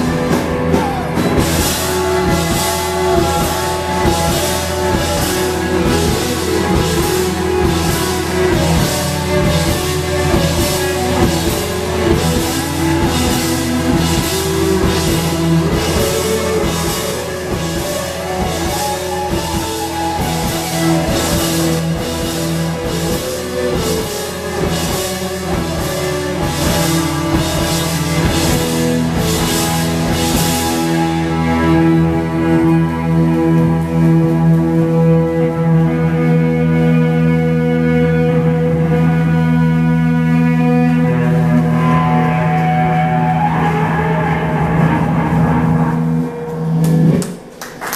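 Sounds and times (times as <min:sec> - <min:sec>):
drum kit beat: 0:00.0 - 0:34.8
violin: 0:00.0 - 0:47.5
bass guitar: 0:00.0 - 0:47.9
electric guitar: 0:00.0 - 0:47.9.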